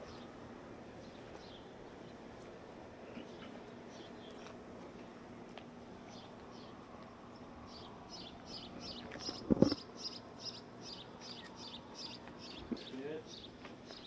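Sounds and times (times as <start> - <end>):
bird chirping: 6.1 - 14.0.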